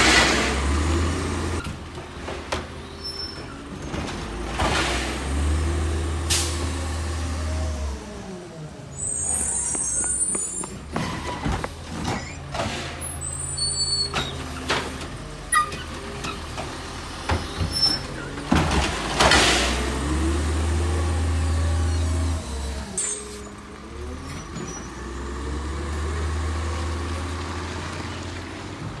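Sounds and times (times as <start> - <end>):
truck engine accelerating: 0.0 - 13.6, 14.3 - 29.0
air brake hiss: 6.3 - 6.6.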